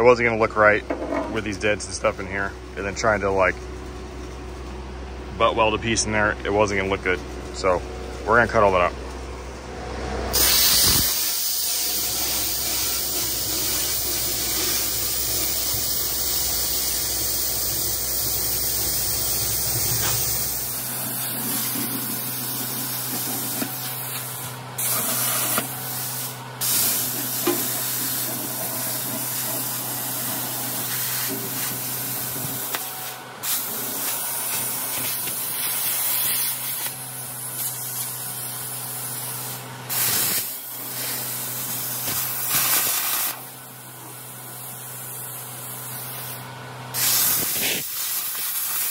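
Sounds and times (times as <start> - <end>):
plasma cutter hissing: 10.3 - 48.9.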